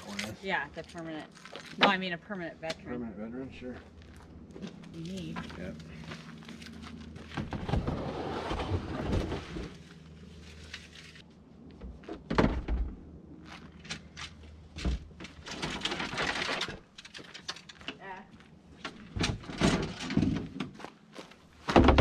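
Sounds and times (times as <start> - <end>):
cooler scraping on cargo floor: 7.4 - 9.8
knocks and clatter of gear: 13.5 - 18.1.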